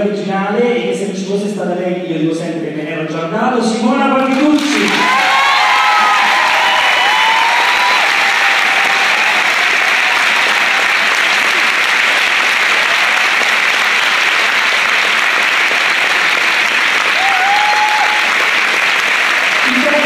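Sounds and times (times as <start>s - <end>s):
audience applauding: 4.3s - 20.0s.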